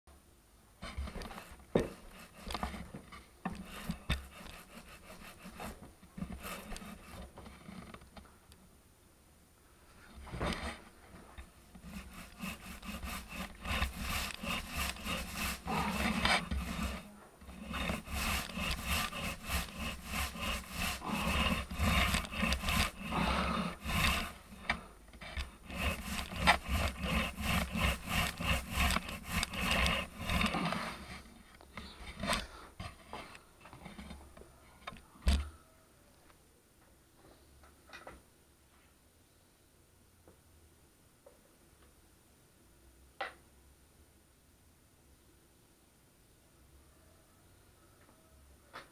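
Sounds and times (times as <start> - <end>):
paint roller rubbing on ceiling: 0.9 - 2.9, 3.5 - 7.9, 11.4 - 33.1.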